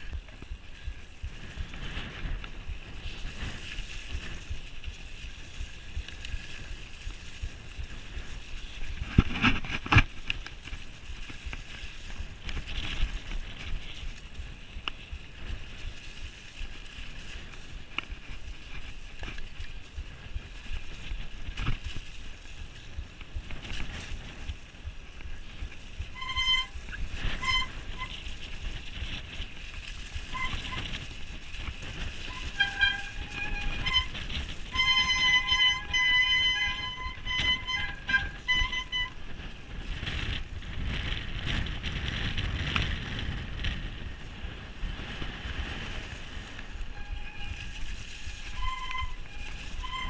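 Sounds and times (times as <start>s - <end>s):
bike knocks and rattles: 0.0s - 44.2s
bike rumble: 0.0s - 50.0s
wind buffeting microphone: 0.0s - 50.0s
high-pitched squealing tones: 32.2s - 39.2s.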